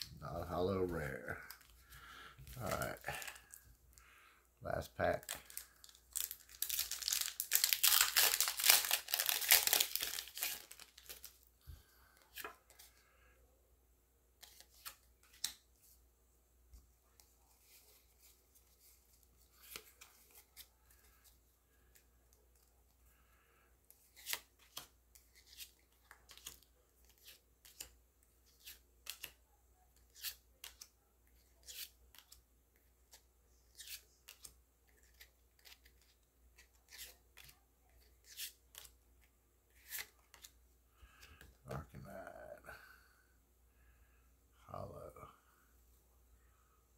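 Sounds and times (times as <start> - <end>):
foil wrapper crinkling and tearing: 5.2 - 11.4.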